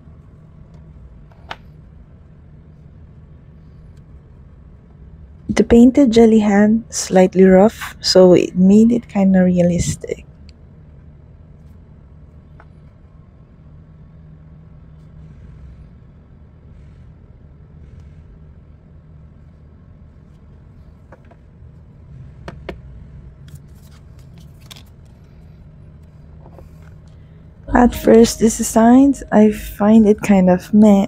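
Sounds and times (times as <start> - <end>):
low background hum: 0.0 - 31.0.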